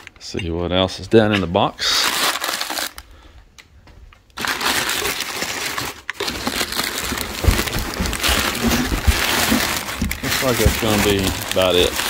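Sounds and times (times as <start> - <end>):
packing paper rustling and crinkling: 1.8 - 3.0, 4.4 - 12.0.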